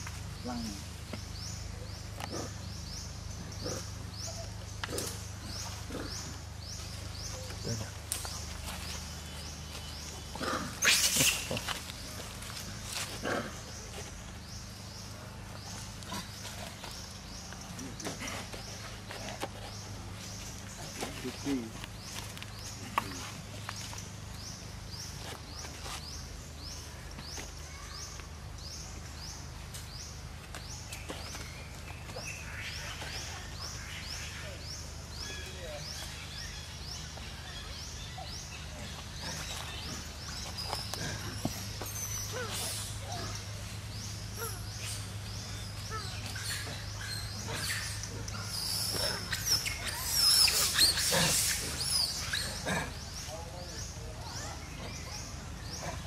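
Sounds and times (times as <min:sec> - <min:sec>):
monkeys squealing and screeching: 0:10.4 - 0:11.8, 0:39.3 - 0:43.5, 0:45.8 - 0:53.1.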